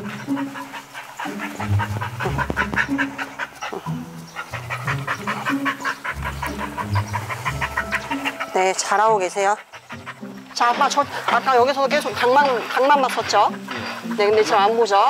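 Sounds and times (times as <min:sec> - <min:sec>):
background music with bass notes: 0:00.0 - 0:09.2
dog panting quickly: 0:00.0 - 0:15.0.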